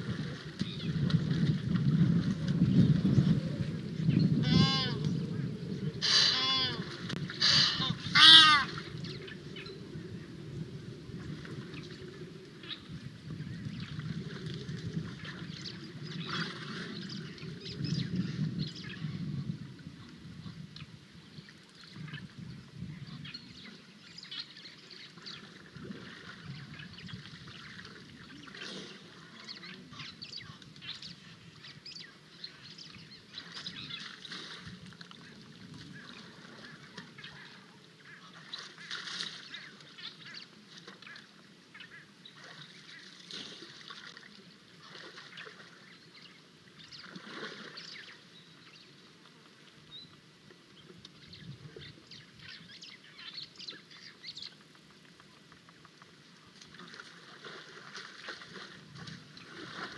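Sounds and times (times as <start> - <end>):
elephant splashing in water: 0.0 - 3.3, 46.8 - 48.2, 56.7 - 59.9
birds calling: 4.1 - 9.8.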